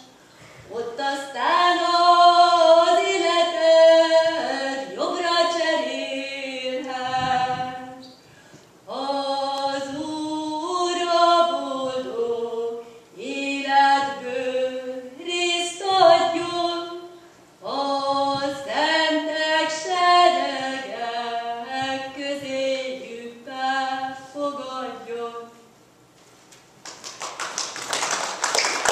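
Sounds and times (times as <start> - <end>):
woman singing unaccompanied: 0.0 - 8.2, 8.9 - 25.7
woman breathing: 0.2 - 0.7, 8.2 - 8.7.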